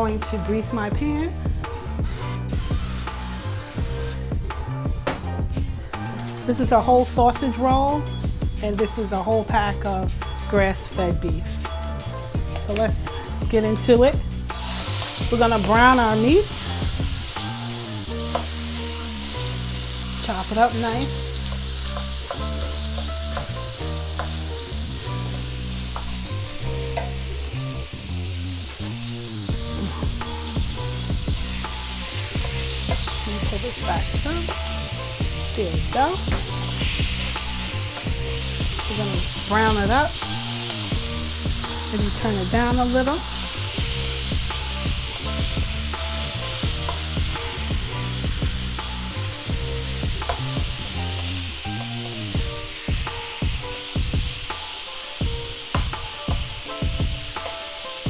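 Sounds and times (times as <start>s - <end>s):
background music: 0.0s - 58.0s
meat sizzling in a pan: 1.3s - 7.1s, 14.1s - 58.0s
spatula stirring meat: 16.4s - 27.3s.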